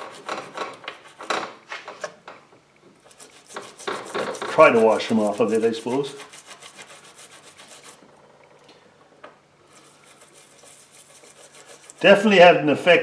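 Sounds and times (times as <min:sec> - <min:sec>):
toothbrush scrubbing a coin: 0:00.0 - 0:01.2, 0:03.0 - 0:08.0, 0:09.7 - 0:12.2.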